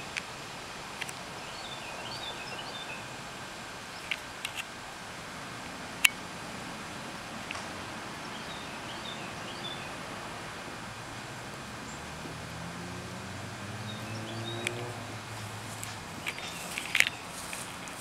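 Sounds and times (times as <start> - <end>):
outdoor hiss: 0.0 - 18.0
small birds chirping: 1.3 - 3.2, 8.1 - 10.0, 13.5 - 18.0.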